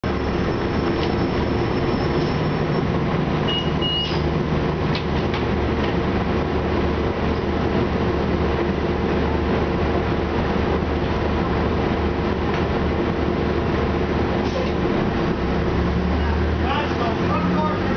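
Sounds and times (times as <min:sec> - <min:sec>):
bus engine drone: 0:00.0 - 0:17.9
two-part electronic beep: 0:03.5 - 0:04.2.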